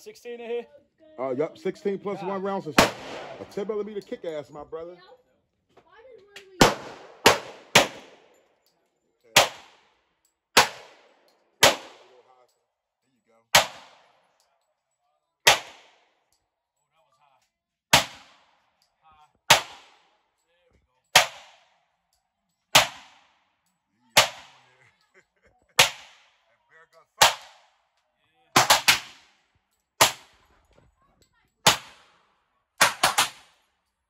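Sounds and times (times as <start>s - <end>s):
pistol shots: 2.7s - 4.0s, 6.6s - 8.4s, 9.3s - 10.0s, 10.6s - 12.2s, 13.5s - 14.3s, 15.4s - 16.1s, 17.9s - 18.6s, 19.4s - 20.1s, 21.1s - 21.8s, 22.7s - 23.4s, 24.2s - 24.6s, 25.8s - 26.4s, 27.2s - 27.8s, 28.5s - 30.4s, 31.6s - 33.6s.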